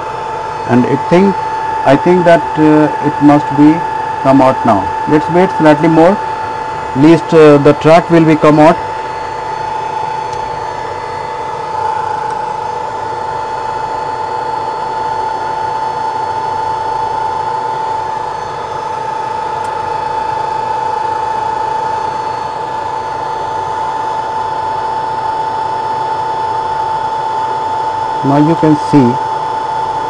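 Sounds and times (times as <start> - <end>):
hot-air blower whirring: 0.0 - 30.0
steady whining tone: 0.0 - 30.0.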